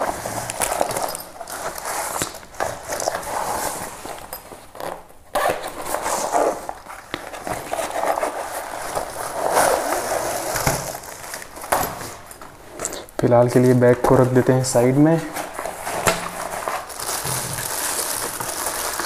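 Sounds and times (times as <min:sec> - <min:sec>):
plastic wrapping crinkling: 0:00.0 - 0:19.0
fabric bag rustling: 0:05.6 - 0:12.9, 0:14.8 - 0:19.0.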